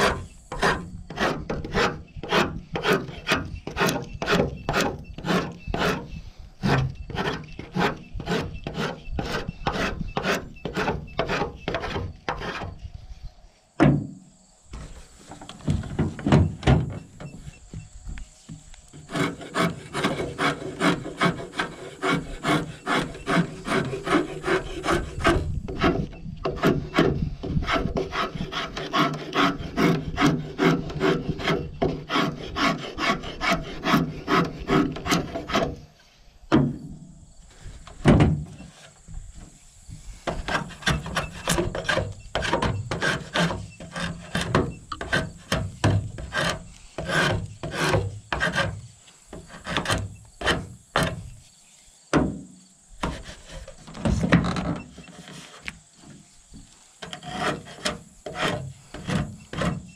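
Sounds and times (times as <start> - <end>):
draw knife scraping wood: 0.0 - 12.8, 19.0 - 35.8, 40.3 - 51.3, 53.0 - 55.7, 57.0 - 59.9.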